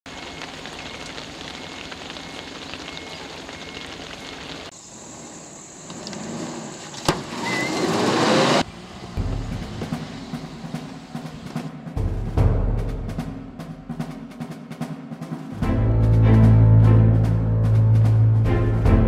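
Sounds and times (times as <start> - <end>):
rain hiss on wet road: 0.1 - 11.7
vehicle engine rising in pitch: 5.0 - 11.7.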